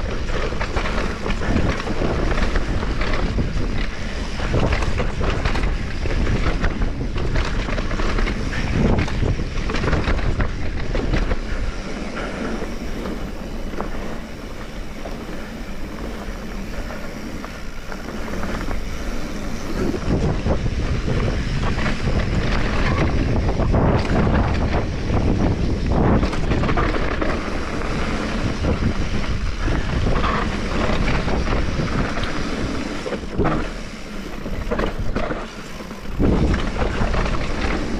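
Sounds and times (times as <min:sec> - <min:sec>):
bike clattering over rough ground: 0:00.0 - 0:37.9
wind buffeting microphone: 0:00.0 - 0:37.9.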